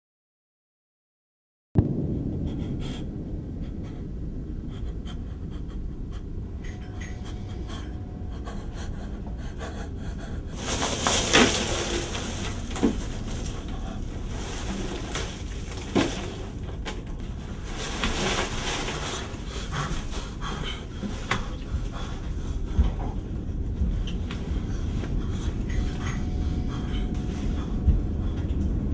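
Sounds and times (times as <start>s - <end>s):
low steady rumble: 1.8s - 28.9s
man panting heavily: 2.4s - 12.1s, 18.7s - 28.9s.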